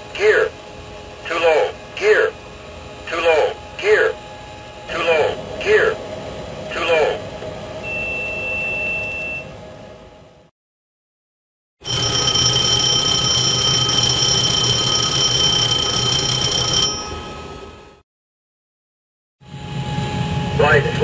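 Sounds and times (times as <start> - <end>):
steady high warning tone: 0.0 - 10.3, 11.8 - 18.0, 19.4 - 21.0
fire warning bell ringing: 11.8 - 18.0.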